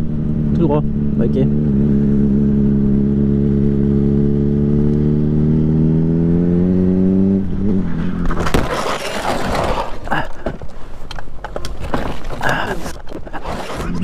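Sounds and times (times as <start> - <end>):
motorcycle scraping along asphalt: 0.0 - 14.0
motorcycle engine pulling: 7.5 - 14.0.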